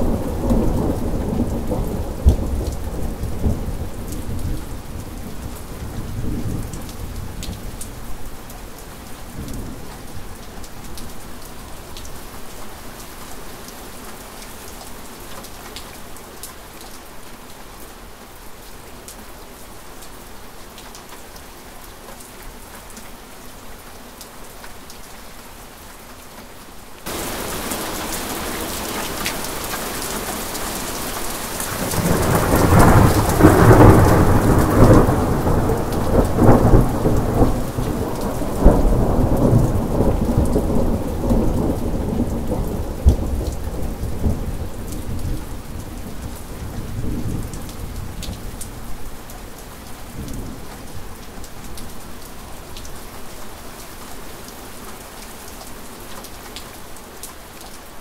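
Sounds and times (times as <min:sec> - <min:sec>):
steady rain: 0:00.0 - 0:58.0
thunder rolling and cracking: 0:31.7 - 0:43.6.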